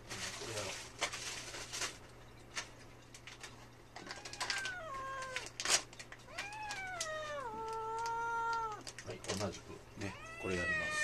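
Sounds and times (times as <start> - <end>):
cat yowling: 4.0 - 5.6, 6.3 - 8.9, 10.0 - 11.0.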